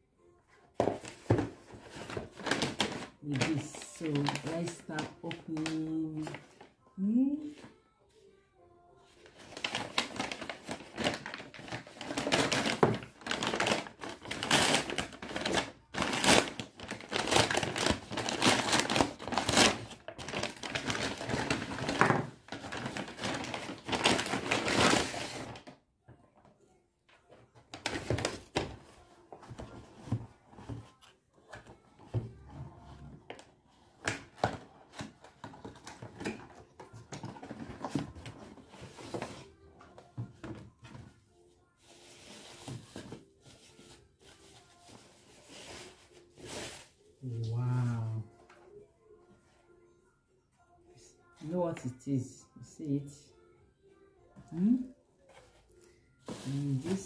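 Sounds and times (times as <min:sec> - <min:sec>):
paper mailer tearing and rustling: 0:09.4 - 0:25.7.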